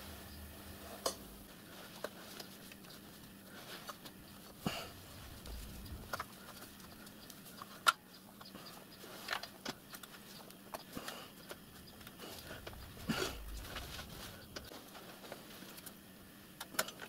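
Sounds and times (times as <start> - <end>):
cloth rustling: 12.2 - 15.8.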